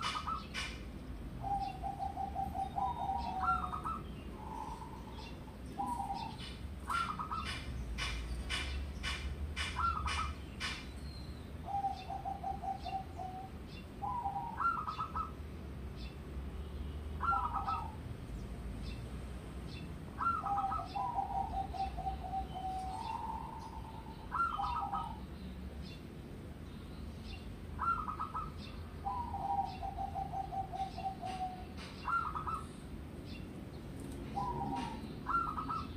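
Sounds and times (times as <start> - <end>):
dove cooing: 0.0 - 10.8, 11.6 - 15.4, 17.2 - 18.0, 20.2 - 25.2, 27.8 - 32.9, 34.2 - 35.9.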